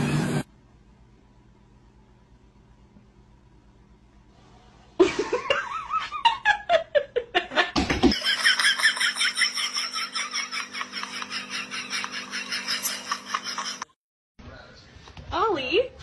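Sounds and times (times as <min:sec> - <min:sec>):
person laughing: 0:05.0 - 0:13.9.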